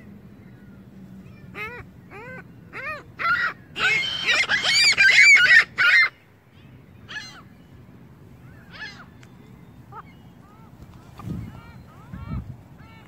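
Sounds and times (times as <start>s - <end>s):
gulls calling: 0.0s - 7.8s, 8.4s - 13.0s.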